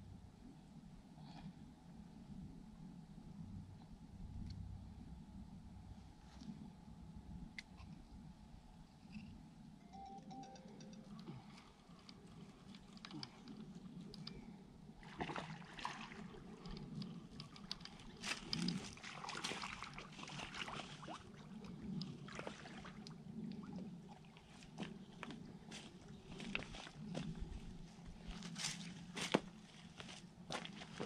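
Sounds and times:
fish splashing in water: 15.0 - 16.7, 18.1 - 24.4.

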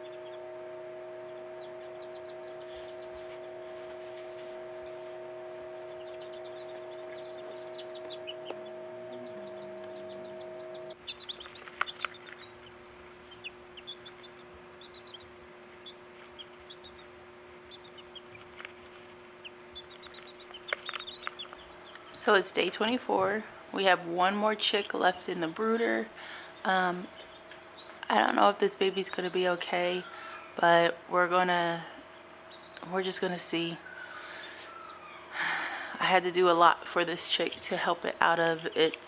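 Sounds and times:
chicks peeping: 0.0 - 30.7, 31.6 - 39.0
steady hum: 0.0 - 39.0.

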